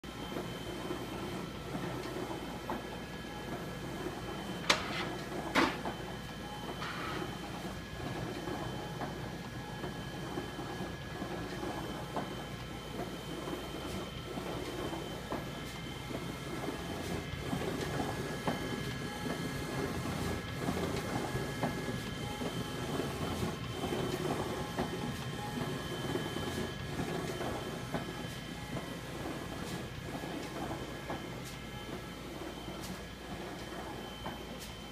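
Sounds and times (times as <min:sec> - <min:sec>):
printer mechanical hum and whine: 0:00.0 - 0:34.9
printer clicks: 0:04.6 - 0:06.0.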